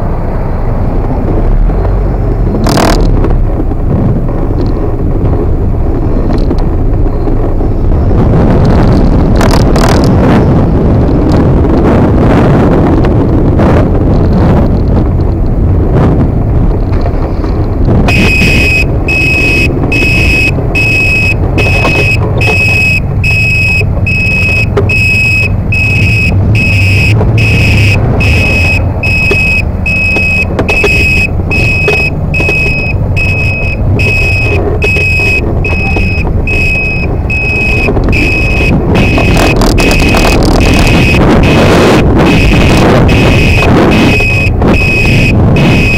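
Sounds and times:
wind rumble on microphone: 0.0s - 45.9s
electronic buzzer beeping: 18.1s - 45.9s.

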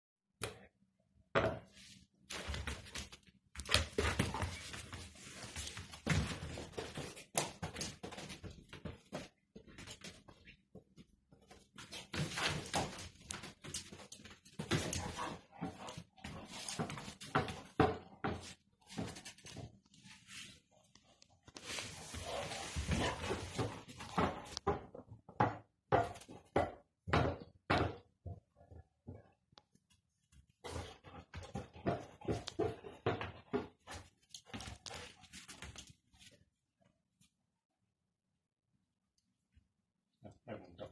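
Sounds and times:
dog scuffling ball on carpet: 21.5s - 24.6s.

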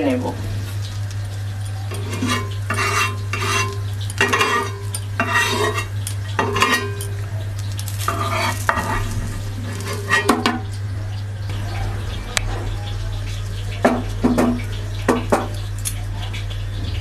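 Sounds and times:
crepe frying light sizzle: 0.0s - 17.0s
steady low hum: 0.0s - 17.0s
spatula scraping and tapping pan: 1.9s - 10.8s.

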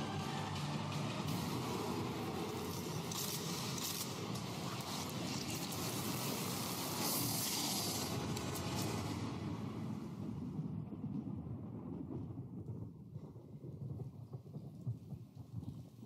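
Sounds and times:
steady rushing noise: 0.0s - 12.3s
low rumble: 0.0s - 14.6s.

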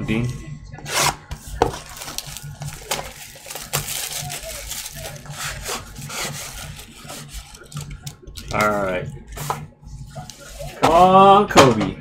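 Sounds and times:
plastic wrapping crinkling and tearing: 0.8s - 9.4s.

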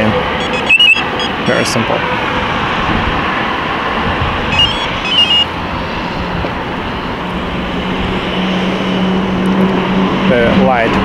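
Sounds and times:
car alarm chirps: 0.2s - 1.8s, 4.5s - 5.5s.

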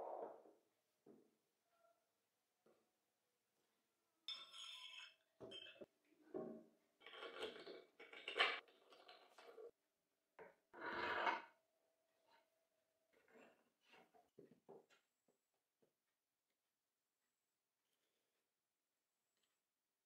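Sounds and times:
metal clinks and scrapes: 4.3s - 5.9s.

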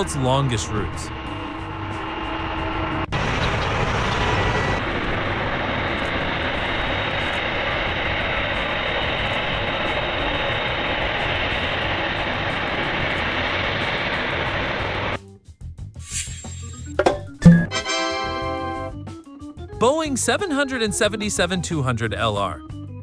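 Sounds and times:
jet engines running: 0.0s - 15.2s.

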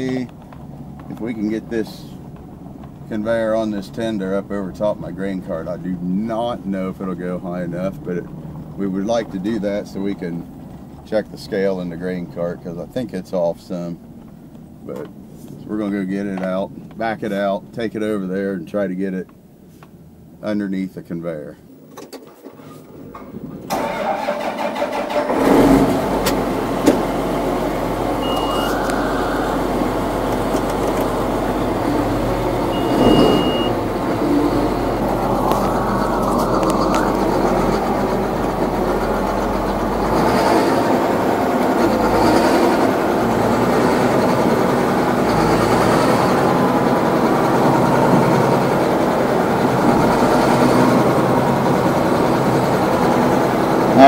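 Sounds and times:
tractor diesel engine: 0.0s - 13.0s, 21.6s - 54.0s.

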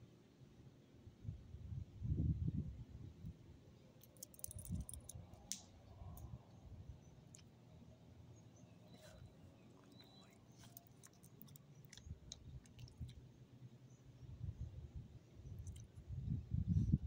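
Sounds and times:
dog chewing: 9.8s - 13.2s.

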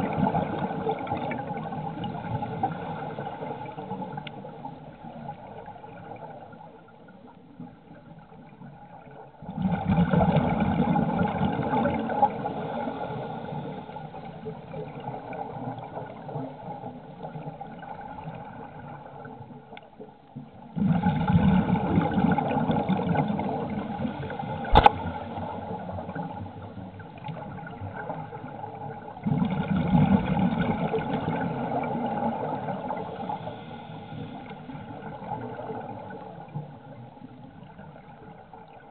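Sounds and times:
underwater diver bubbles gurgling: 0.0s - 38.9s.

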